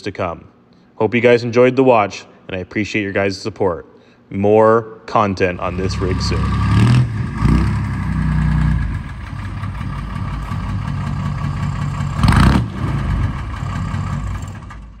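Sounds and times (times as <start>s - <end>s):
diesel truck engine running: 5.6s - 15.0s.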